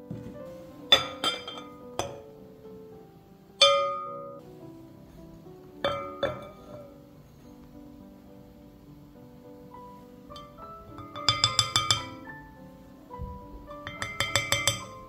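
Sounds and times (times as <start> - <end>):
soft background music: 0.0 - 15.0
glass dishes clinking: 0.9 - 2.4, 3.6 - 4.4, 5.8 - 7.0, 10.3 - 12.5, 13.8 - 15.0.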